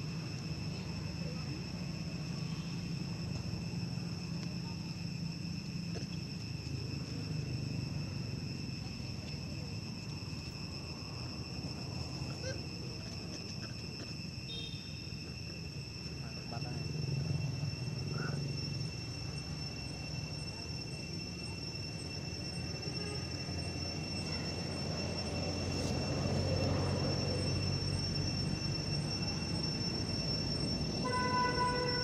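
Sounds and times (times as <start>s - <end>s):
insect drone: 0.0s - 32.0s.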